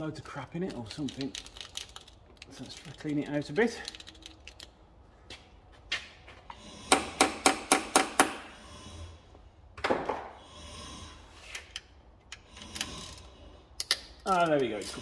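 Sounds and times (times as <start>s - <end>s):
metal tool clicks: 13.8s - 15.0s.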